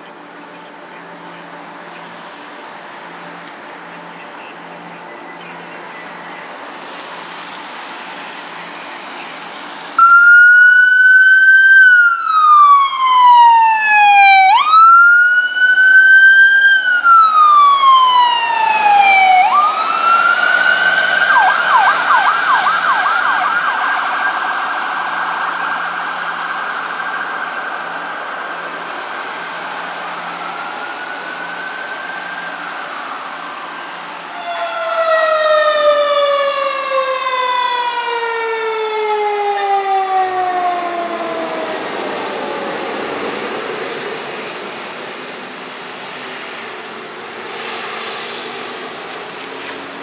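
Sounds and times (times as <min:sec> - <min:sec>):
electronic siren wailing: 0:10.0 - 0:28.2, 0:34.3 - 0:43.4.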